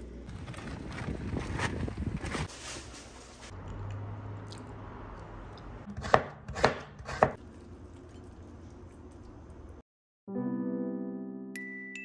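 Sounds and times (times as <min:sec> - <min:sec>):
knife chopping food: 0:06.0 - 0:07.4.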